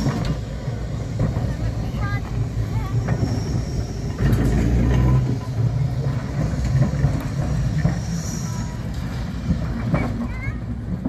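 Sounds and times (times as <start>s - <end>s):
tram wheels rumbling on rails: 0.0s - 11.0s
faint high wheel squeals: 2.8s - 9.3s.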